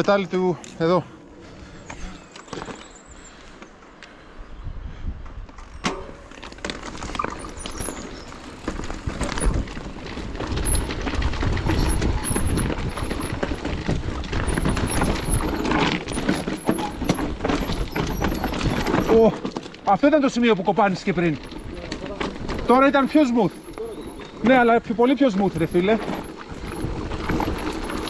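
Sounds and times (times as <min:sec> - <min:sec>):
bike knocking and rattling: 0:05.2 - 0:28.0
tyres crunching over gravel: 0:06.2 - 0:28.0.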